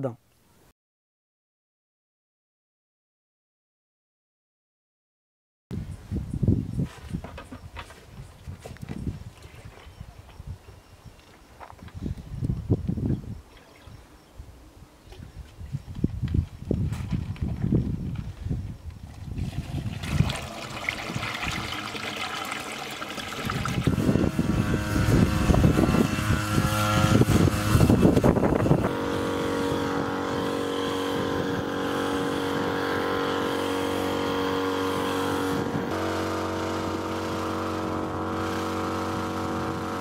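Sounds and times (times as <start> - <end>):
crop sprayer engine running: 19.4 - 40.0.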